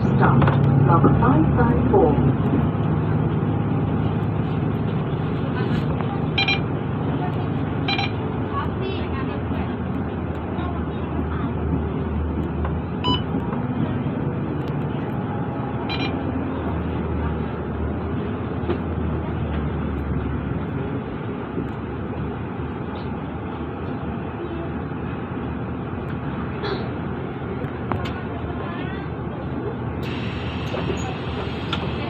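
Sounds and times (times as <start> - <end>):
bus engine drone: 0.0 - 32.0
road noise: 0.0 - 32.0
short beep: 6.4 - 6.7, 7.8 - 8.2, 13.0 - 13.3, 15.9 - 16.2.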